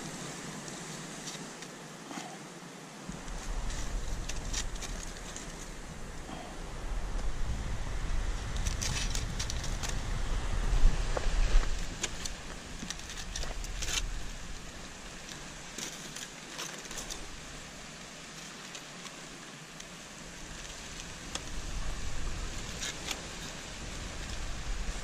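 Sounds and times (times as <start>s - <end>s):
aluminium foil crinkling: 8.6s - 10.0s.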